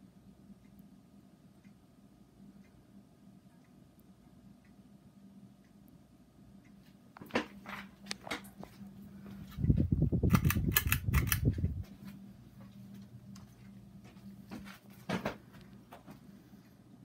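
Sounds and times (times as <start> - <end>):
ceiling fan humming: 0.0 - 17.0
scattered clicks: 10.2 - 11.8.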